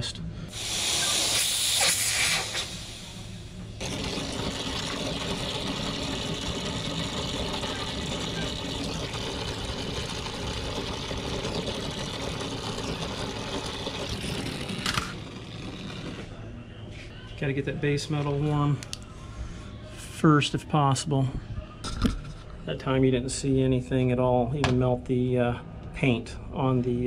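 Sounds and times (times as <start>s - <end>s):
gas hissing through tubing: 0.5s - 16.3s
torch flame rushing: 0.5s - 16.3s.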